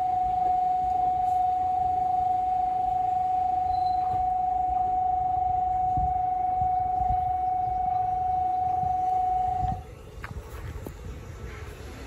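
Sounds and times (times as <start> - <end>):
steady high warning beep: 0.0 - 9.8.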